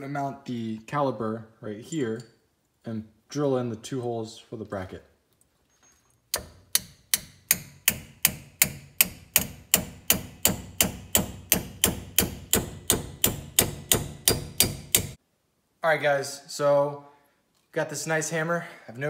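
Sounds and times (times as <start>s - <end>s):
hammer striking metal rotor: 6.4s - 15.2s.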